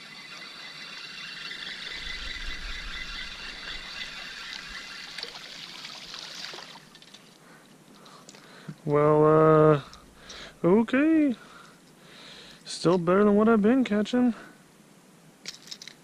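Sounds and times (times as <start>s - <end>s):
fishing reel whirring: 0.0s - 7.4s
fish splashing at surface: 4.1s - 7.2s.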